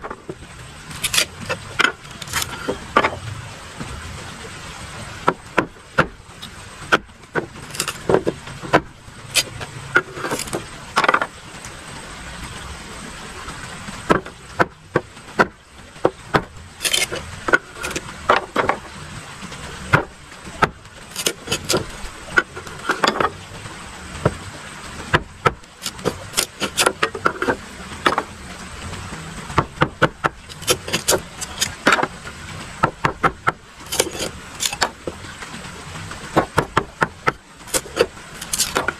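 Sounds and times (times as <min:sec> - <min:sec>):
machete chopping bamboo: 0:16.4 - 0:18.8, 0:19.9 - 0:21.9, 0:29.6 - 0:32.1, 0:36.4 - 0:38.9.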